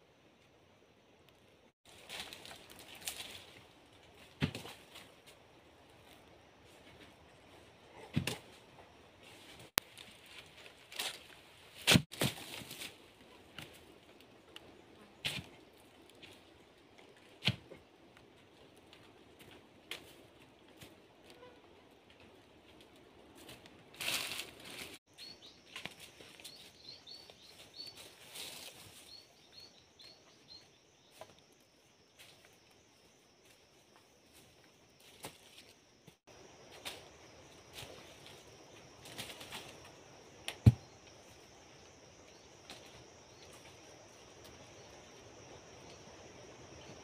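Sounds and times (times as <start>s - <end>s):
footsteps in dry leaves: 1.9s - 3.8s, 23.4s - 25.2s, 27.6s - 29.3s.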